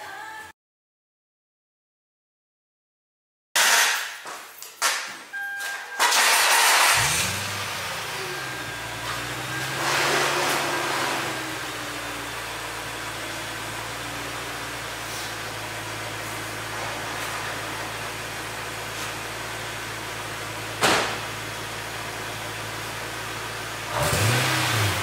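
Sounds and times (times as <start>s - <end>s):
car engine idling: 6.1s - 25.0s.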